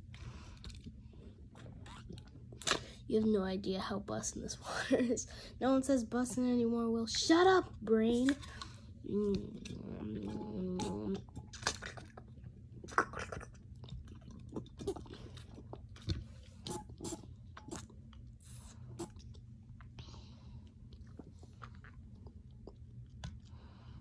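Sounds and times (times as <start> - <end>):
mouth clicks and swallows: 9.4 - 20.0
person drinking from bottle: 18.8 - 19.3.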